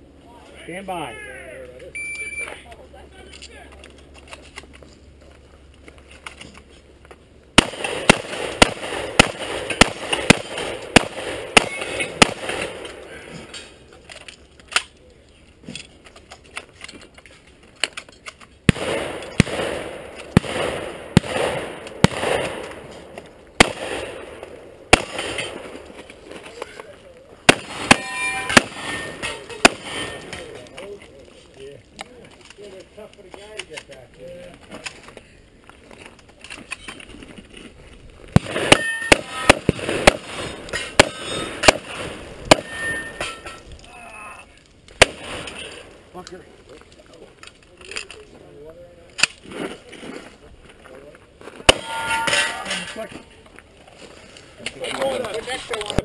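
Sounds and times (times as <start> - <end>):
shotgun shots: 7.6 - 13.0, 18.7 - 25.9, 27.4 - 30.5, 38.4 - 43.5, 45.0 - 45.8, 51.7 - 52.6
steel target ringing: 27.5 - 30.3, 38.6 - 39.6, 42.5 - 43.6, 51.7 - 53.0.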